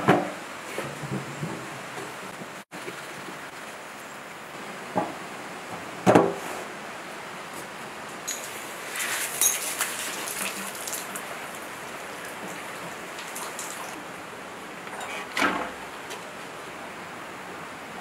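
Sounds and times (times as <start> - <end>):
water running from a hose: 8.3 - 14.0.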